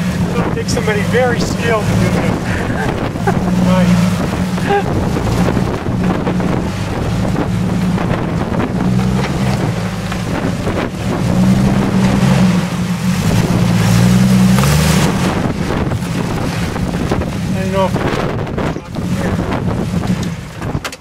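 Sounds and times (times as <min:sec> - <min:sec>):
engine working at low revs: 0:00.0 - 0:20.8
wind buffeting microphone: 0:00.0 - 0:21.0.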